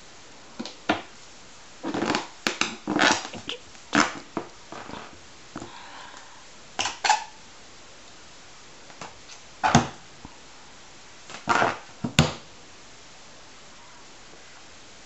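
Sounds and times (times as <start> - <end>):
rubbery balloon squeaks: 1.8 - 5.2, 6.8 - 7.4, 9.6 - 10.0, 11.3 - 12.3.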